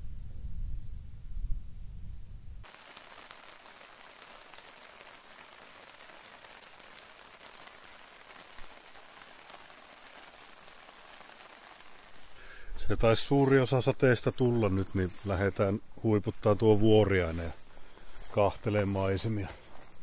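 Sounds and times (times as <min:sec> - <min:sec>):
steady rain: 0:02.6 - 0:15.6.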